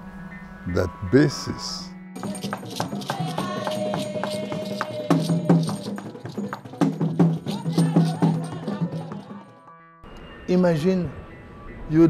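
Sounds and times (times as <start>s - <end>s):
voices chanting: 0.7s - 9.6s
hand percussion rattles: 2.2s - 9.5s.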